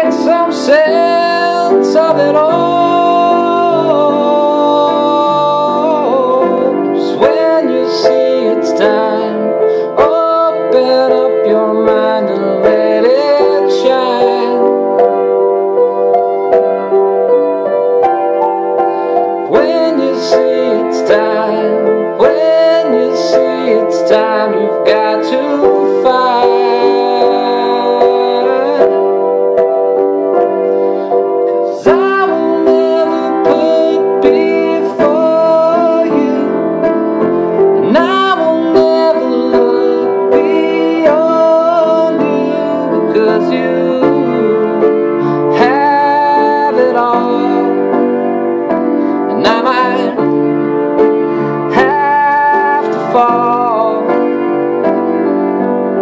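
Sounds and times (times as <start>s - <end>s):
man singing wordless vocals: 0.0s - 14.9s, 19.4s - 29.2s, 31.6s - 37.0s, 37.8s - 48.1s, 49.2s - 50.4s, 51.4s - 54.4s
piano chords: 0.0s - 56.0s.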